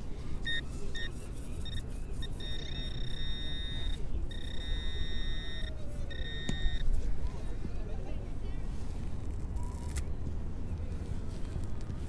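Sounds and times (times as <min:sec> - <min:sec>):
metal detector beeping: 0:00.4 - 0:06.9.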